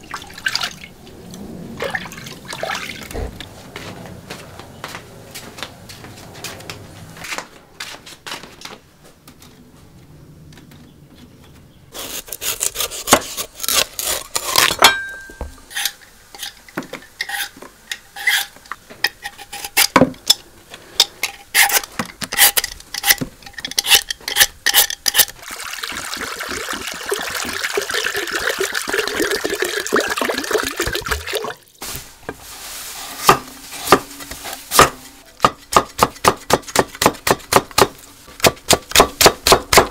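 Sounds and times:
peeler scraping rind: 12.0 - 14.8, 15.7 - 16.6, 17.2 - 20.0, 21.2 - 25.4
cleaver chopping cabbage: 12.0 - 14.9, 33.2 - 34.1, 34.7 - 39.9.

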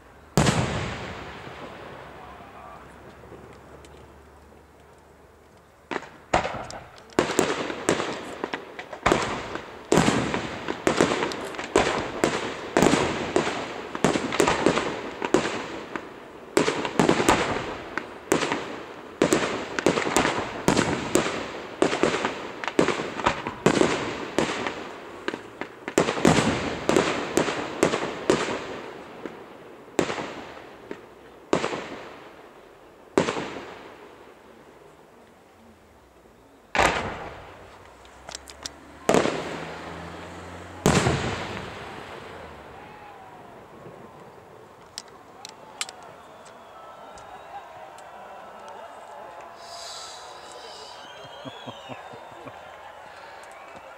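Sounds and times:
firework shells bursting: 5.9 - 29.4.

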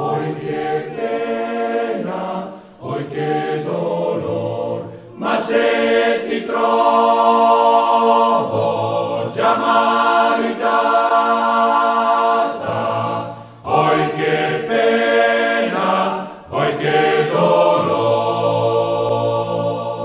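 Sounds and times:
choir singing held chords: 0.0 - 20.0
singers breathing: 2.4 - 2.9, 4.8 - 5.2, 13.2 - 13.7, 16.2 - 16.6.

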